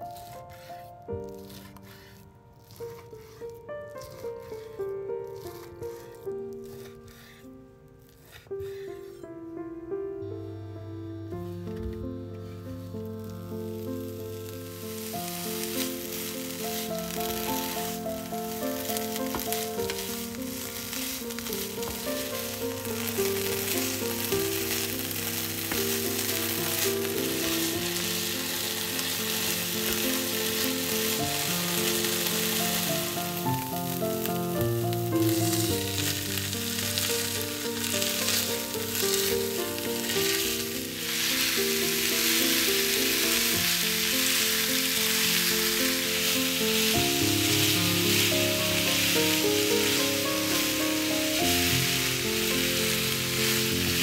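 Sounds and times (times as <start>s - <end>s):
wooden spatula stirring: 0.0s - 9.4s, 12.4s - 54.0s
soft background music: 0.0s - 54.0s
bacon sizzling in a frying pan: 12.7s - 54.0s.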